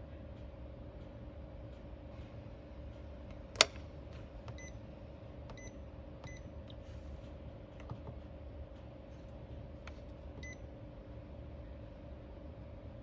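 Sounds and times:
fridge hum: 0.0 - 13.0
control panel click: 3.6 - 3.8.

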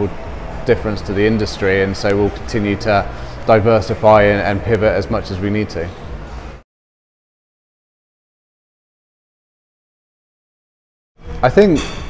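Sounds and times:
man speaking: 0.7 - 6.0.

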